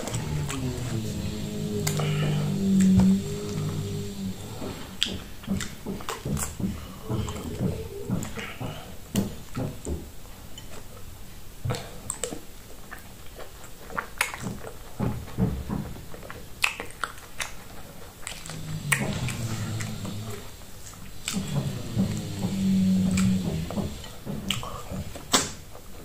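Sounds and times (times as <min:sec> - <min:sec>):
chewing: 0:00.0 - 0:09.8, 0:11.7 - 0:26.0
wet squishing of dough: 0:00.0 - 0:26.0
sharp wet clicks and smacks: 0:05.0 - 0:09.8, 0:11.7 - 0:25.9.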